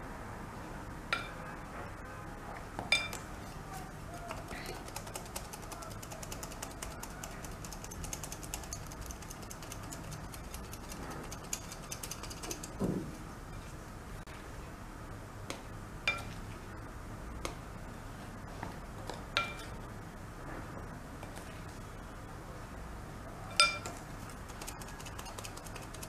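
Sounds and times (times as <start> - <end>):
flour sifter ratcheting: 4.2 - 12.8, 23.9 - 26.0.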